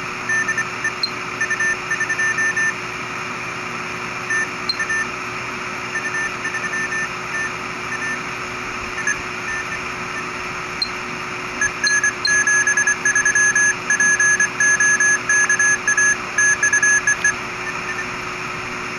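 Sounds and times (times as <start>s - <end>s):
morse code beeping tone: 0.3s - 2.8s, 4.3s - 5.1s, 5.9s - 8.2s, 9.0s - 11.0s, 11.6s - 18.2s.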